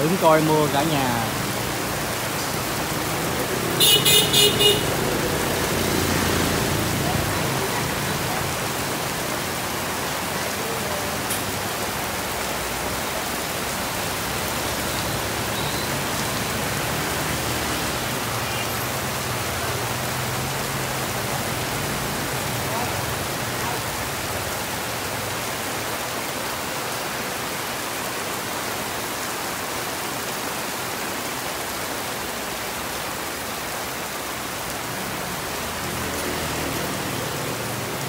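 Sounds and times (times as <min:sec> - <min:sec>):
heavy rain pouring: 0:00.0 - 0:38.0
traffic on wet street: 0:00.0 - 0:38.0
vehicle horn beeps: 0:03.8 - 0:04.9, 0:15.5 - 0:16.0.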